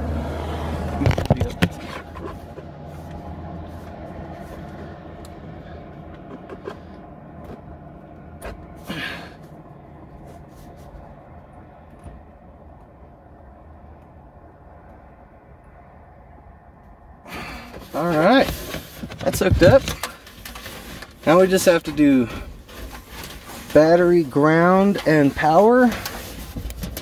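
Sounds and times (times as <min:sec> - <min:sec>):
cable clicks and scrapes on metal: 0:03.8 - 0:07.7, 0:17.8 - 0:27.0.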